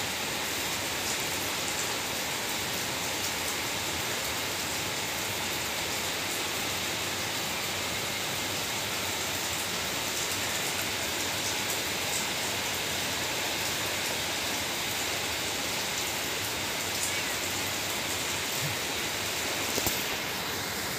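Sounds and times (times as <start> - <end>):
steady rain hiss: 0.0 - 20.9.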